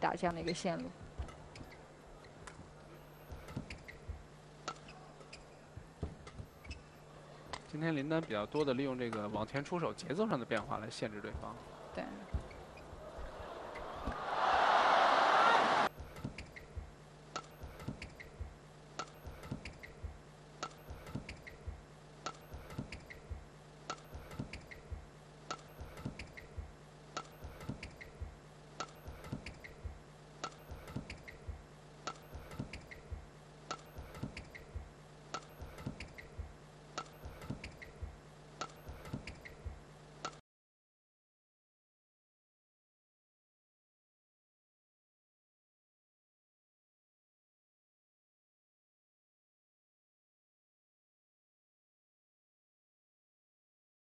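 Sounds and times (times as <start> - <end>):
steady low hum: 15.8 - 40.4.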